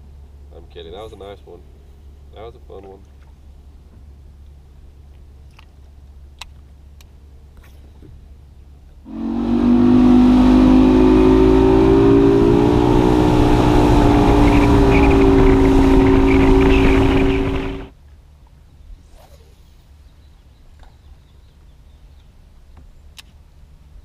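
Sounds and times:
outboard motor drone: 9.1s - 17.9s.

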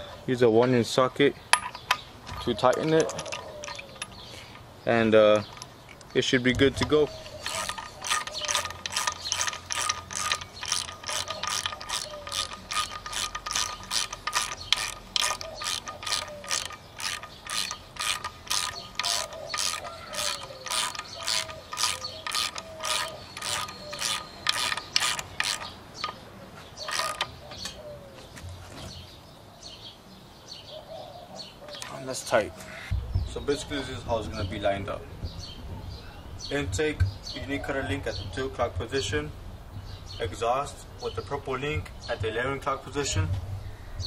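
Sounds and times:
hand ratchet clicking: 6.8s - 26.2s, 26.8s - 27.4s.

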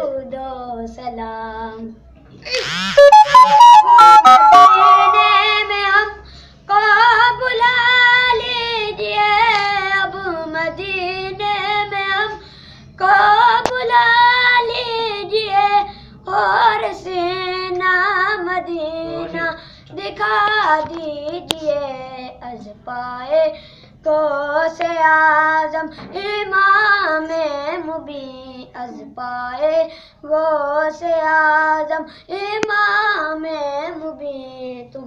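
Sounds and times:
breaths: 6.2s - 6.7s, 12.4s - 13.0s, 15.8s - 16.2s, 19.6s - 20.0s, 23.5s - 24.0s, 25.8s - 26.1s, 29.9s - 30.2s, 32.0s - 32.3s
boy singing unaccompanied: 13.0s - 35.0s.

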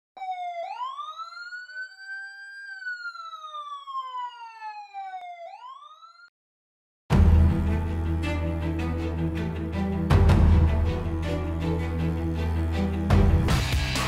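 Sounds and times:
police siren wailing: 0.2s - 6.3s.

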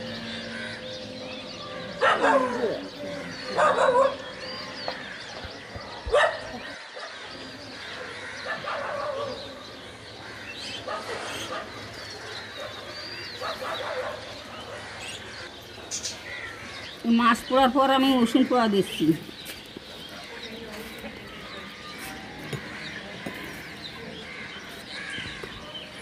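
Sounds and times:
dog barking: 2.0s - 2.8s, 3.5s - 4.2s, 6.1s - 7.1s, 8.4s - 9.4s, 12.6s - 14.4s
budgerigars chattering and chirping: 7.7s - 26.0s.

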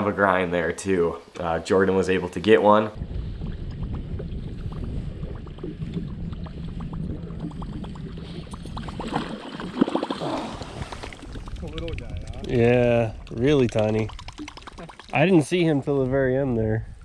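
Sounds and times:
low rumble of wind: 2.9s - 17.0s
choppy water lapping: 3.2s - 12.5s
fish splashing: 5.2s - 12.1s, 13.2s - 15.4s.

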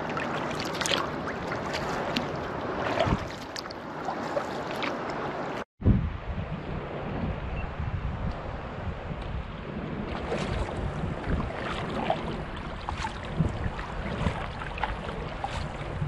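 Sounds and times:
water lapping against kayak hull: 0.0s - 5.6s, 9.6s - 16.0s
wind rumbling on microphone: 0.0s - 16.0s.

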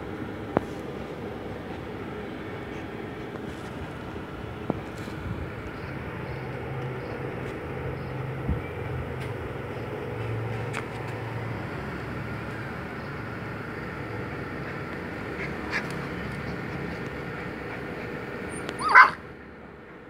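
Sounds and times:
low background hum: 0.0s - 20.0s
puppy squeaks: 18.5s - 19.2s.

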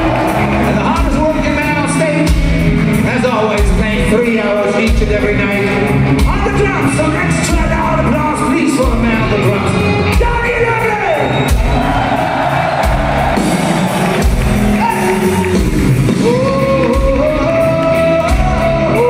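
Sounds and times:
metal band playing live: 0.0s - 19.0s
person singing: 16.2s - 19.0s.

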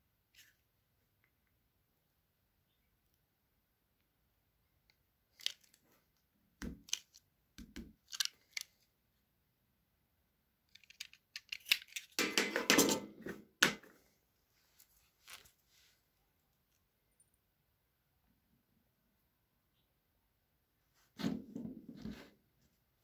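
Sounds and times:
plastic clicks and scrapes: 8.0s - 8.8s, 10.7s - 12.2s.

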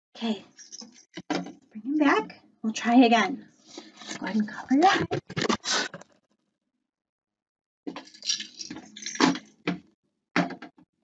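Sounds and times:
plastic toys scraping and rattling: 0.6s - 1.2s, 4.0s - 6.0s, 7.9s - 9.5s
handling clicks and knocks: 7.9s - 9.8s.

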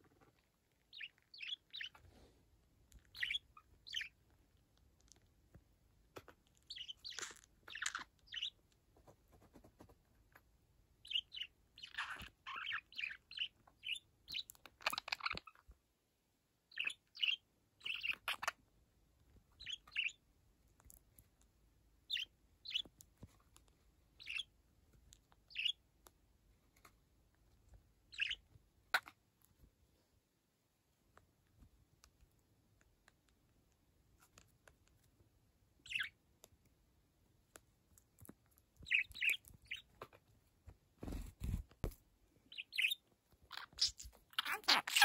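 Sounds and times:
budgerigar chirping and warbling: 0.9s - 2.0s, 3.1s - 4.2s, 6.7s - 8.6s, 11.0s - 15.6s, 16.7s - 18.6s, 19.6s - 20.2s, 24.2s - 24.5s, 25.5s - 25.8s, 28.1s - 29.1s, 35.8s - 36.1s, 38.8s - 40.0s, 42.5s - 45.0s.

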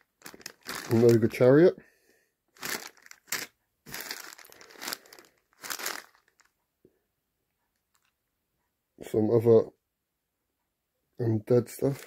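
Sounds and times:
plastic bags crinkling: 0.0s - 1.6s, 2.6s - 6.5s.

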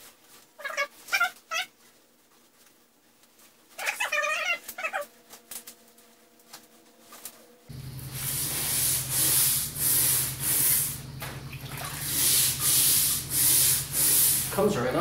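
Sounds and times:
steady low hum: 4.7s - 15.0s
scrubbing strokes on wet metal: 7.9s - 15.0s.

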